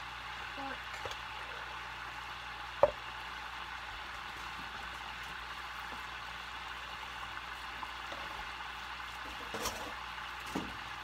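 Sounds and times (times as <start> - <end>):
meat sizzling in a skillet: 0.0 - 11.0.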